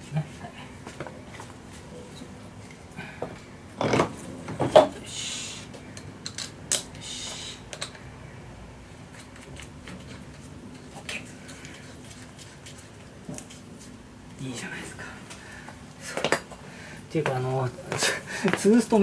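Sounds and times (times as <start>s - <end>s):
short hisses: 5.0s - 5.7s, 7.0s - 7.6s.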